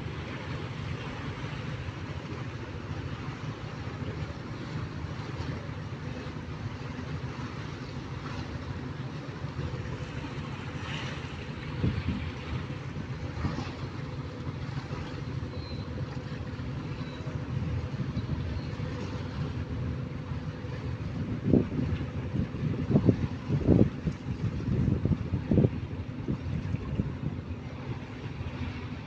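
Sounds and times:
ship diesel engines humming: 0.0 - 29.0
wind on microphone: 10.8 - 13.8, 17.0 - 29.0.

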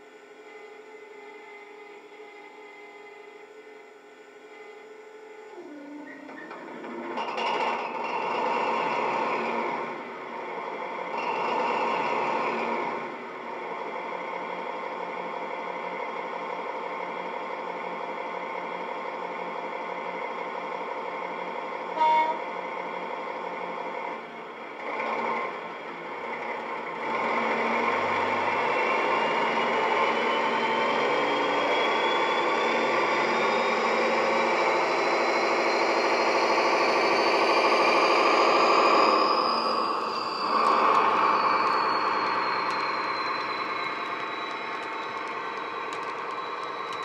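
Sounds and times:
model diesel engine from small speaker: 0.0 - 47.0
rising engine whine: 0.0 - 47.0
horn blast: 21.9 - 22.6.

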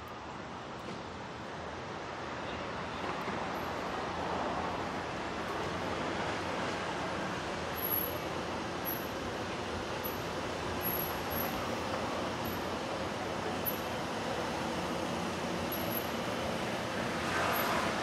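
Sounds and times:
city traffic hum: 0.0 - 18.0.

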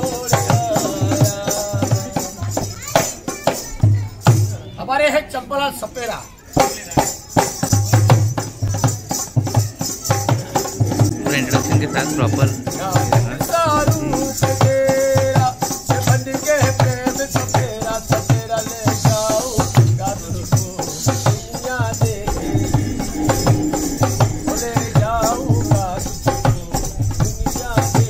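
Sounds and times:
dholak drum beat: 0.0 - 4.6, 5.7 - 28.0
jingling rattling percussion: 0.0 - 4.6, 5.7 - 28.0
person singing: 20.7 - 26.6.

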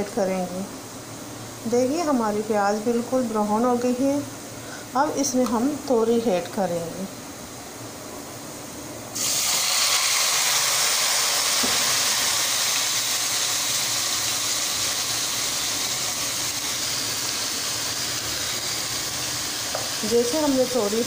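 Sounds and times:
vegetables sizzling in hot oil: 9.2 - 21.0.

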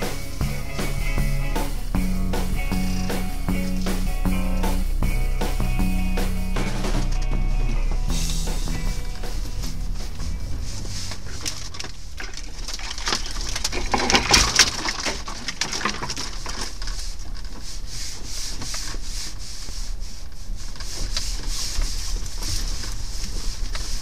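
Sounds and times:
engine low rumble: 0.0 - 13.6
branches scraping and snapping: 10.5 - 17.8.

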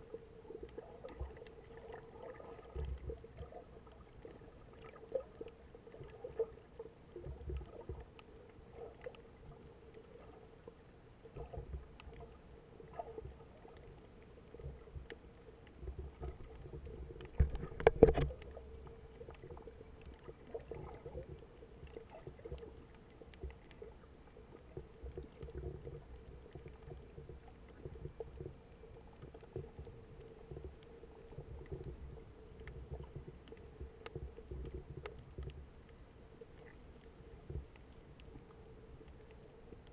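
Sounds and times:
faint steady hum: 0.0 - 39.9
muffled underwater rumble: 0.0 - 39.9
small knocks: 17.2 - 18.5.

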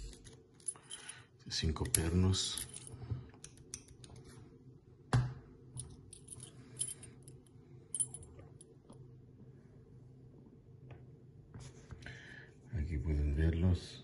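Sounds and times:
padlock and keys jingling: 0.0 - 1.2, 1.8 - 3.9, 5.8 - 8.3.

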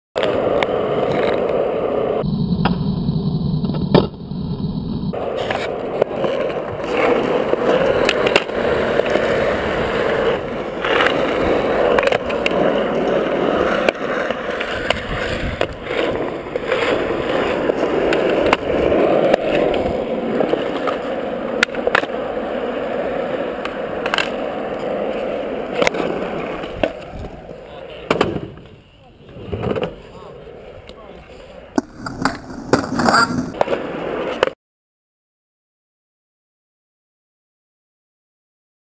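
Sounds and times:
skateboard wheels rolling on concrete: 0.2 - 34.6
skateboard wooden clacks: 5.2 - 22.2, 23.6 - 25.0, 25.7 - 30.1.

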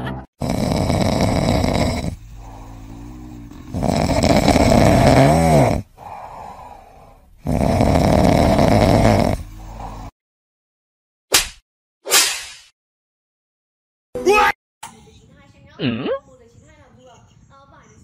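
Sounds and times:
cat breathing: 0.4 - 10.1
cat snoring: 0.4 - 10.1.

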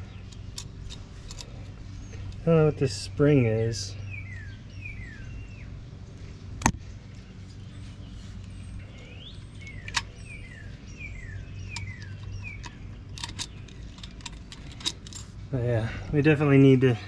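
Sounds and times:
bird chirping: 0.0 - 17.0
steady low hum: 0.0 - 17.0
sharp clicks of wheel hub: 8.5 - 10.6, 11.2 - 15.4.

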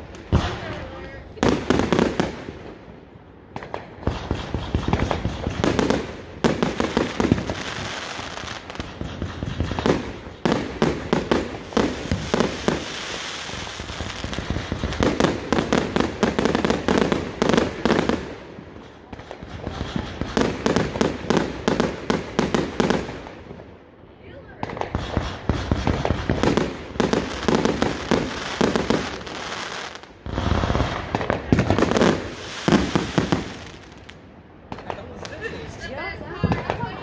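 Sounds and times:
fireworks bangs: 0.0 - 37.0
fireworks crackling: 0.0 - 37.0.

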